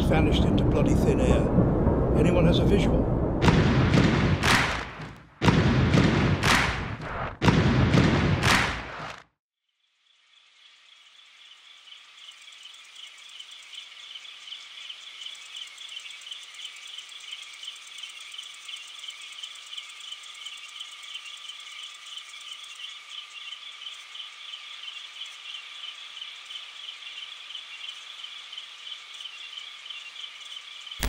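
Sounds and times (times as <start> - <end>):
insects chirping trill: 9.7 - 31.0.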